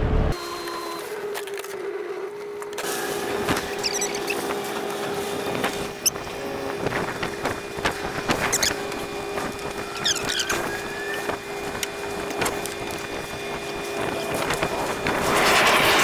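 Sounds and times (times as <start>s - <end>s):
steady engine hum: 1.8s - 16.0s
short high squeaks: 3.6s - 4.6s, 8.4s - 8.8s, 9.8s - 11.3s.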